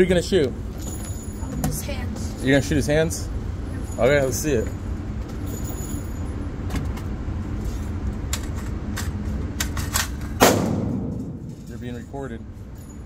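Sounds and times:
loud gunshot bang: 10.4s - 11.6s
low rumble: 10.4s - 12.6s.

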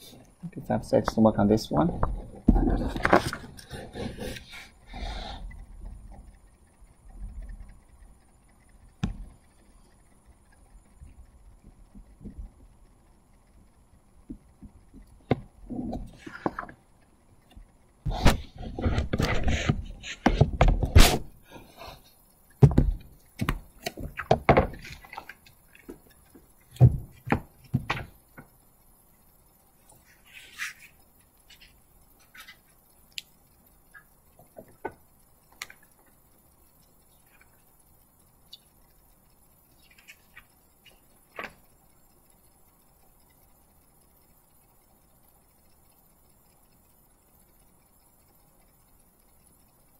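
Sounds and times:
thumps and knocks: 9.0s - 9.4s, 14.3s - 16.8s, 18.1s - 21.1s, 22.6s - 25.3s, 26.7s - 28.5s.

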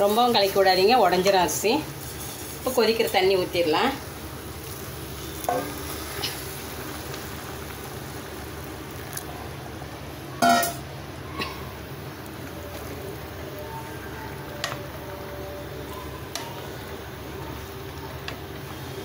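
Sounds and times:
food sizzling and bubbling: 0.0s - 19.0s
water pouring into pot: 4.6s - 9.6s.

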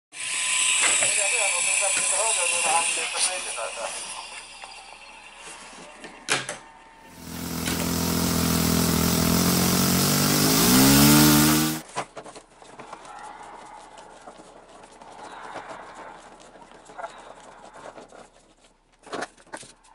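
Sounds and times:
model airplane motor running: 7.1s - 11.8s.

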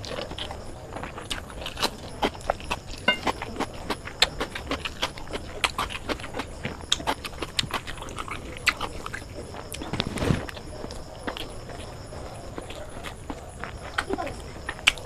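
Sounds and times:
biting and chewing: 0.0s - 15.0s
fingers mixing food on plate: 2.2s - 3.7s.

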